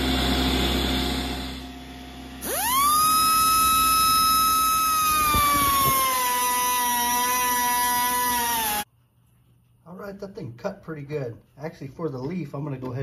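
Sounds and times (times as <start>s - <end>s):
air grinder cutting metal: 0.0s - 8.9s.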